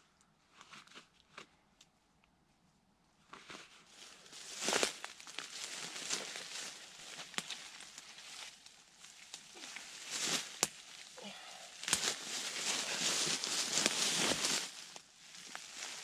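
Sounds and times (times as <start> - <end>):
dry leaves rustling and crackling: 4.0 - 16.0
twigs snapping: 4.6 - 11.1, 11.7 - 16.0.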